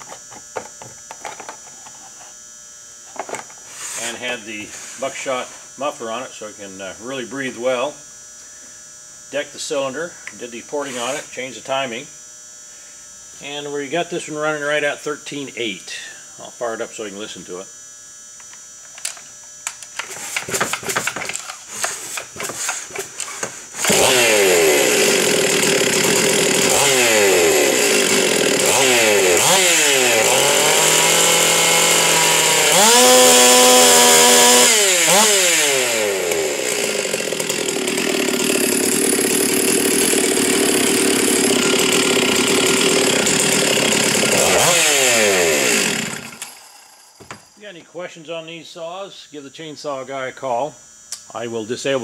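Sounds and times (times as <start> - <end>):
chainsaw pull-start cranking: 19.0 - 47.6
chainsaw engine revving: 21.7 - 47.2.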